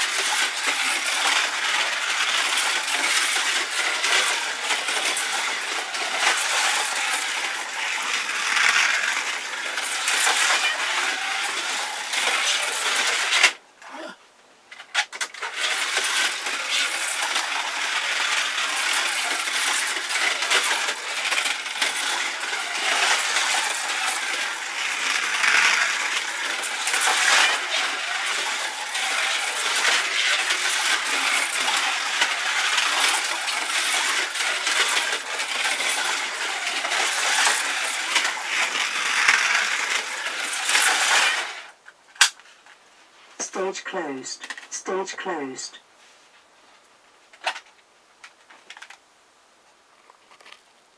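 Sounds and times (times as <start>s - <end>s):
slot cars whirring on track: 0.0s - 13.6s, 15.2s - 42.3s, 43.4s - 45.8s.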